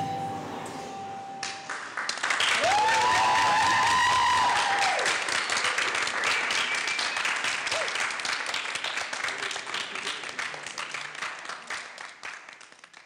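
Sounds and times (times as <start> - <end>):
audience applause: 1.6 - 13.0
high cheer: 2.2 - 8.2.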